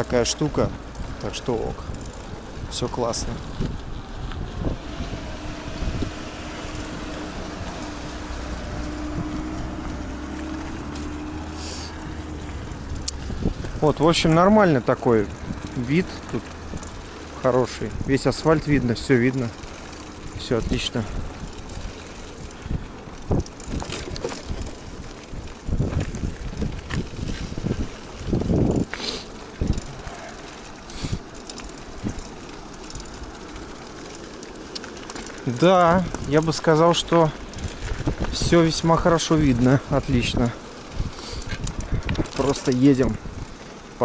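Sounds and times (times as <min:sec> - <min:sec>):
wind over microphone: 0:00.0 - 0:14.6, 0:20.2 - 0:32.3, 0:35.9 - 0:44.0
bike rattling: 0:00.0 - 0:44.0
tyre noise on asphalt: 0:00.0 - 0:44.0.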